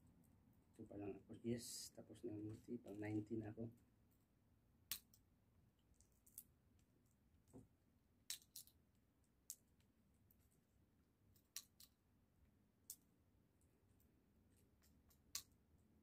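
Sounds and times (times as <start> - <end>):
seeds cracking between teeth: 4.8 - 6.8, 8.2 - 8.8, 11.4 - 12.0.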